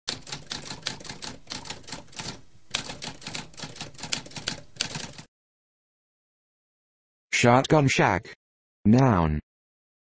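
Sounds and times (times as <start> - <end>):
typewriter typing: 0.1 - 5.3.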